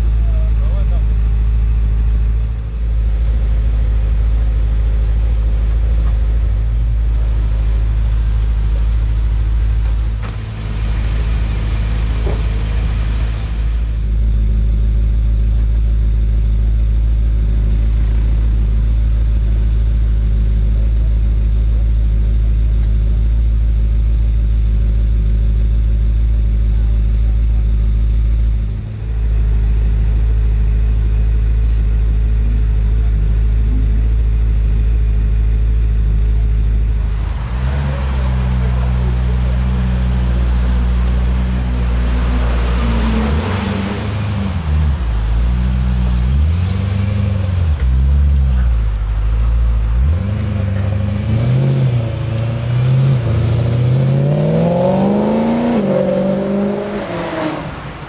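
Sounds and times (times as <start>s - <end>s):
car engine idling and revving: 0.0s - 58.0s
car accelerating away: 36.7s - 58.0s.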